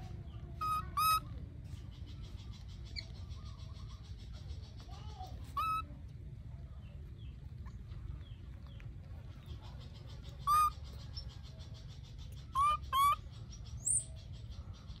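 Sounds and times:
baby monkey coo calls: 0:00.4 - 0:06.0, 0:09.4 - 0:15.0.

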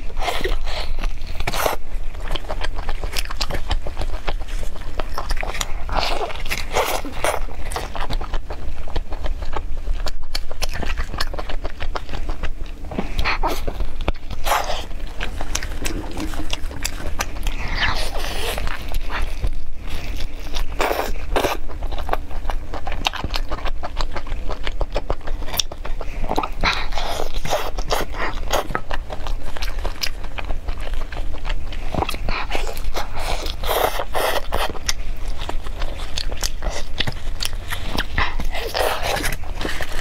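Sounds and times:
person chewing and biting food: 0:00.0 - 0:40.0.

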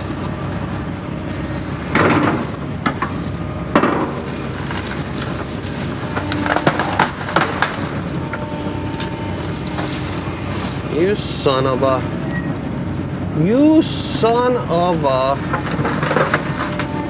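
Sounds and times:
excavator diesel engine running: 0:00.0 - 0:17.0
wood cracking and snapping: 0:02.0 - 0:10.8, 0:15.5 - 0:17.0.

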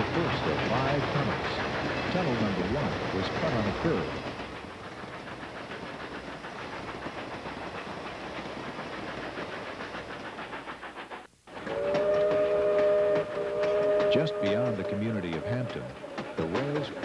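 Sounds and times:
steam train hissing and clattering: 0:00.0 - 0:17.0
steam whistle chord: 0:11.6 - 0:15.8.

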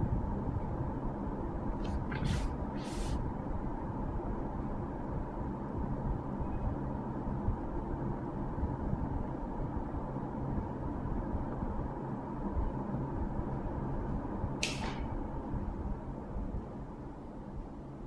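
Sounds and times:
low background rumble and hum: 0:00.0 - 0:18.0
paper rustle: 0:01.8 - 0:03.2.

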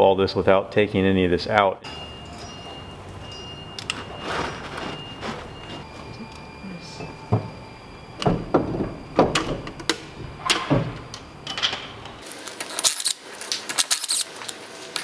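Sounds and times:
metal tools clanking: 0:01.9 - 0:12.9.

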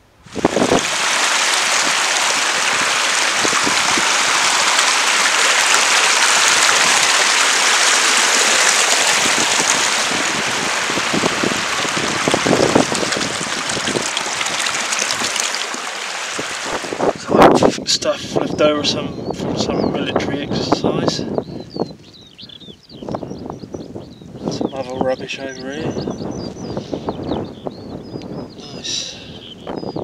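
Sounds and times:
stream rushing over rocks: 0:00.2 - 0:17.2.

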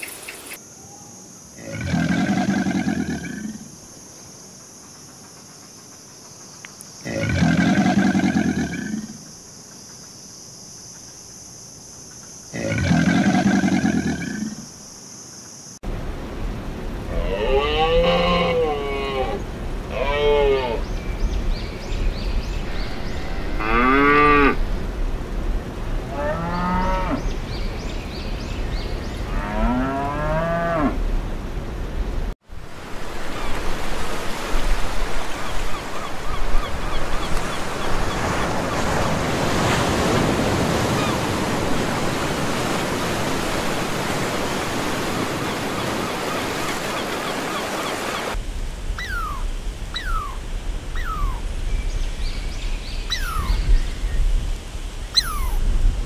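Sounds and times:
cattle mooing: 0:17.1 - 0:20.8, 0:23.6 - 0:24.6
waves washing on beach: 0:32.5 - 0:48.4
squirrel chirping: 0:49.0 - 0:49.4, 0:50.0 - 0:50.4, 0:51.0 - 0:51.4, 0:53.1 - 0:53.6, 0:55.2 - 0:55.6.

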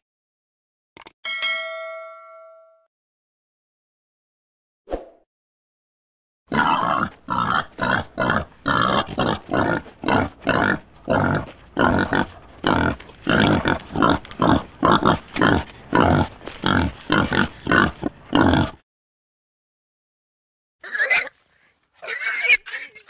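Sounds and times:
wild boar grunting: 0:06.5 - 0:18.8.

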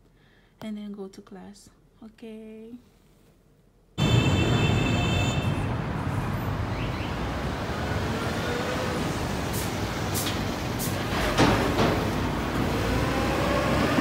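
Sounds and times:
cars passing on road: 0:04.0 - 0:14.0.

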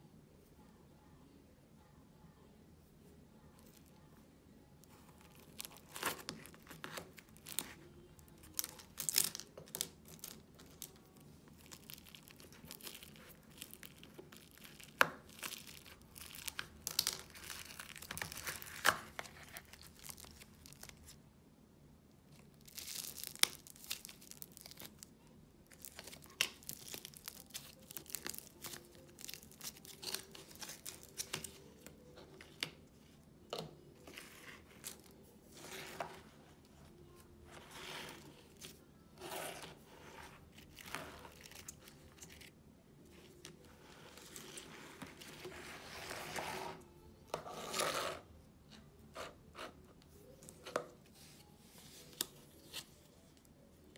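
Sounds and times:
clay crackling and tearing: 0:04.8 - 0:21.2, 0:22.3 - 0:48.3.

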